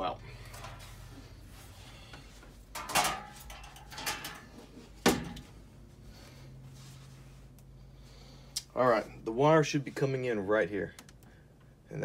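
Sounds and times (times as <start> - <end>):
metal panel cover clanking: 2.7 - 5.4.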